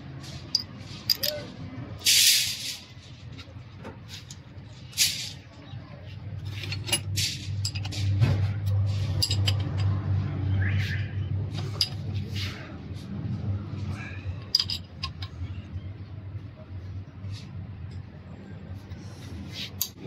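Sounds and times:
small metal parts clicking: 0.4 - 3.0, 6.5 - 10.0, 14.4 - 15.5.

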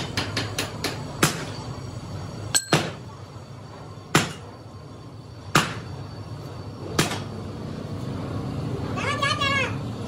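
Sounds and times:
low hum of workshop machinery: 0.0 - 10.0
metal ringing clink: 2.5 - 2.8
sharp metal knocks: 2.5 - 3.0.

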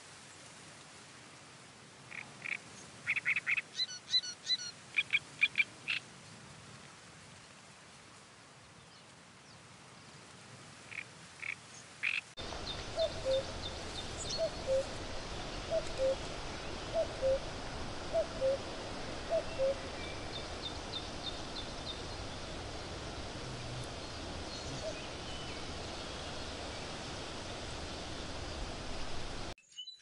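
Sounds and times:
cuckoo calling: 12.4 - 29.5
small birds chirping: 12.4 - 30.0.

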